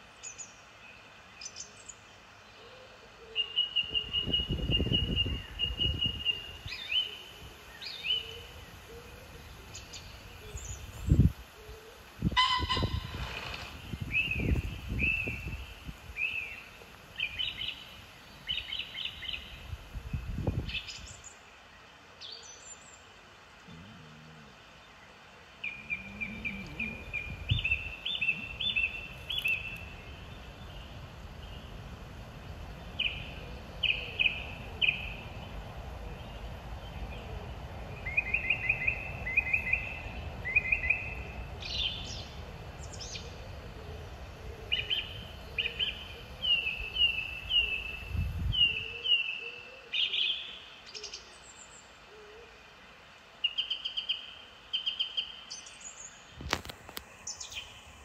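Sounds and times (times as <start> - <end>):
wind rumble on microphone: 3.8 - 21.2, 25.7 - 49.0
small birds chirping: 12.3 - 52.0.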